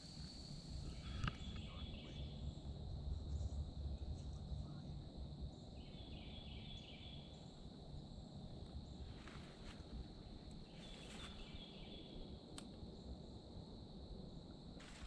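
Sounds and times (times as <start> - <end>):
high insect trill: 0.0 - 15.0
short chirping calls: 0.9 - 2.5.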